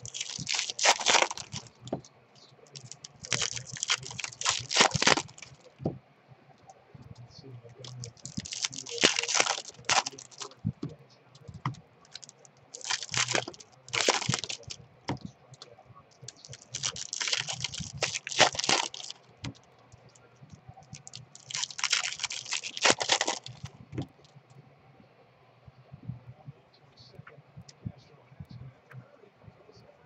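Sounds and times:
foil wrapper crinkling and tearing: 0.0s - 2.0s, 2.8s - 5.7s, 7.8s - 10.6s, 11.5s - 15.3s, 16.3s - 19.6s, 20.9s - 23.7s.

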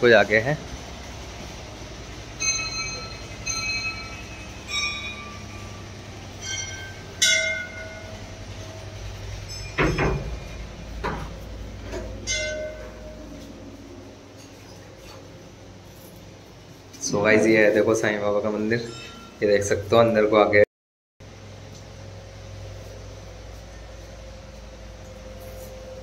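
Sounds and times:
metal bells ringing: 1.7s - 16.3s, 17.4s - 19.9s.

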